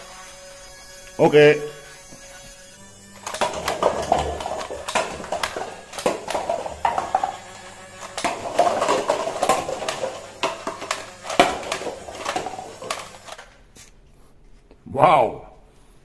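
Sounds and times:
foam-dart blaster firing: 3.0s - 13.6s
cups clattering on wooden floor: 3.2s - 13.5s
darts clacking on paper cups: 3.2s - 13.9s.

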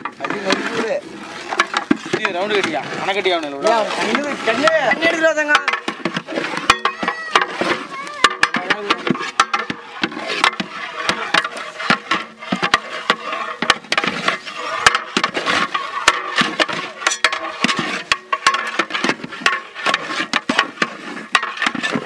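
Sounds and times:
metal ladles clanking on a pot: 0.0s - 22.0s.

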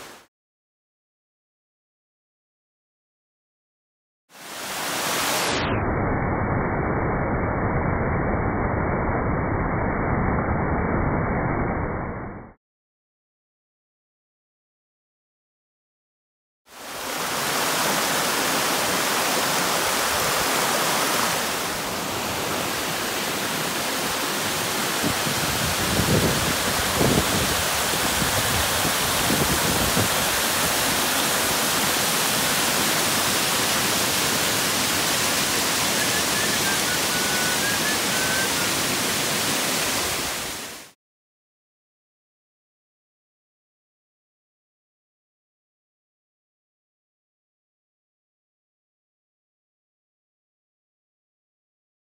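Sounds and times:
waterfall rushing: 4.4s - 5.6s, 16.8s - 41.0s.

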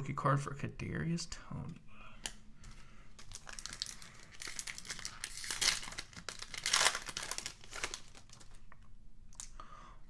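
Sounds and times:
card pack wrapper crinkling: 3.2s - 8.6s.

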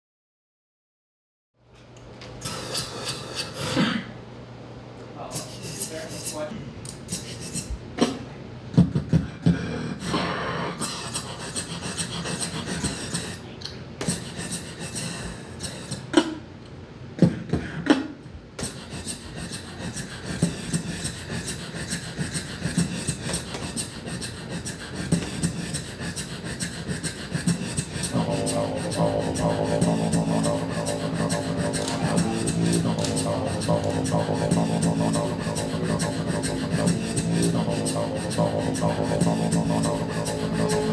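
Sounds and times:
beatboxing into microphone: 2.4s - 4.0s, 5.2s - 16.5s, 17.2s - 40.9s
low sustained tone: 28.1s - 40.9s.

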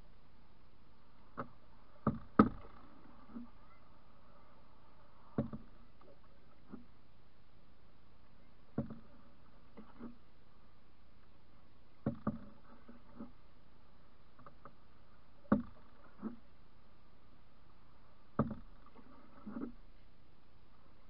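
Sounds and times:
faint background noise: 0.0s - 21.0s
paddle strokes knocking: 1.3s - 3.5s, 5.3s - 5.8s, 8.7s - 10.2s, 12.0s - 13.3s, 18.3s - 19.8s.

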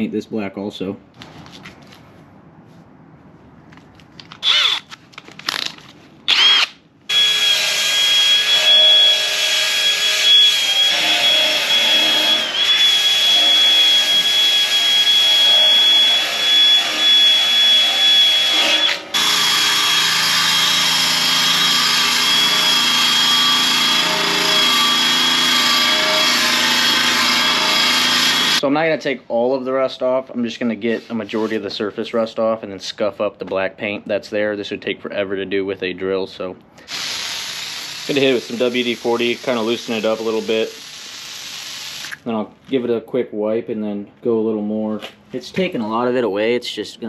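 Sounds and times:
cordless drill whining: 4.4s - 4.9s, 6.3s - 28.6s, 36.8s - 42.2s.

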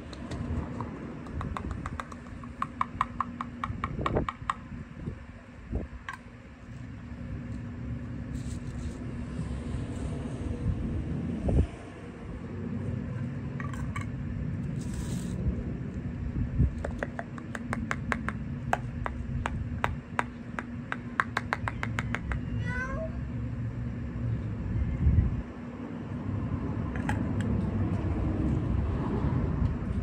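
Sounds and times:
low rumble: 8.4s - 13.6s
cat meowing: 22.5s - 23.2s.

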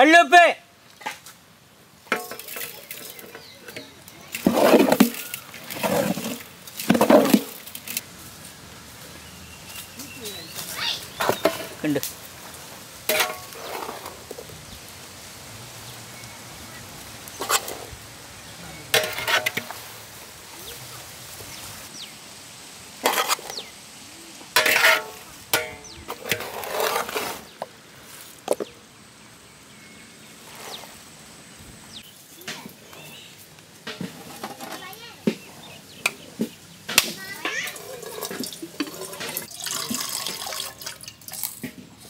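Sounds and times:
ladle clanking on metal pots: 2.1s - 7.9s, 11.2s - 11.9s, 13.1s - 14.1s, 18.9s - 19.8s, 24.6s - 26.6s, 33.8s - 35.4s, 36.4s - 41.8s.

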